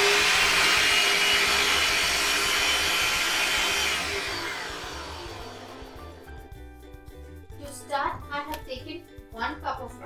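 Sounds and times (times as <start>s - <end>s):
food processor motor running: 0.0s - 6.3s.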